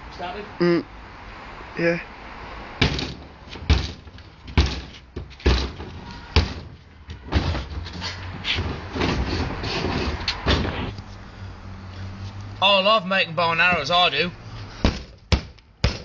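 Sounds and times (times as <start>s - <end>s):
sharp knocks on wood: 2.8s - 6.7s, 14.8s - 16.0s
tools scraping wood: 7.8s - 11.0s.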